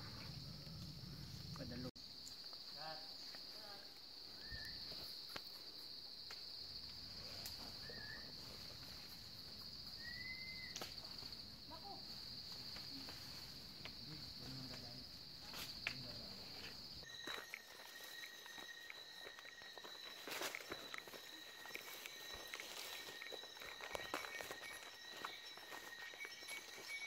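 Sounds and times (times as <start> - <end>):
insects droning: 0.0 - 27.0
footfalls on trail: 17.0 - 27.0
thin steady tones: 17.0 - 27.0.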